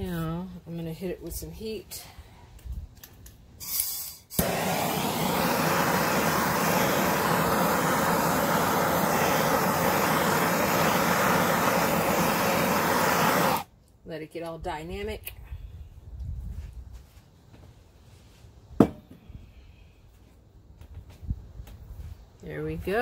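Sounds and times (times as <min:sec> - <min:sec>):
gas torch flame hissing: 0:03.6 - 0:13.7.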